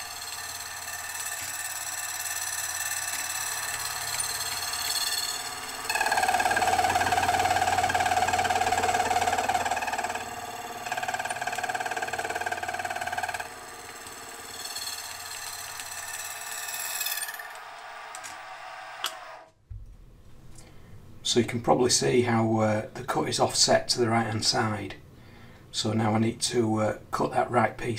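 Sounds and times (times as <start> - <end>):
slitting saw whining through metal: 0.0 - 19.5.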